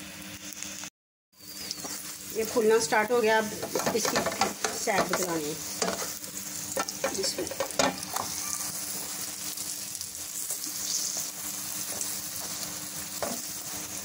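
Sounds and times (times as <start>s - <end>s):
flatbread sizzling in a pan: 0.0s - 14.0s
spatula scraping a pan: 3.6s - 8.8s, 10.3s - 14.0s.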